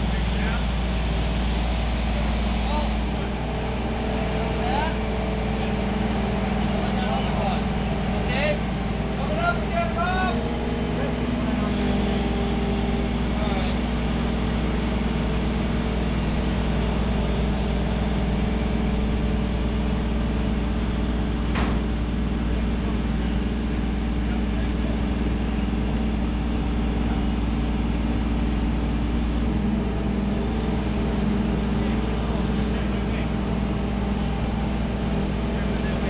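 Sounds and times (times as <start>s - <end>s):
crane engine running: 0.0s - 36.0s.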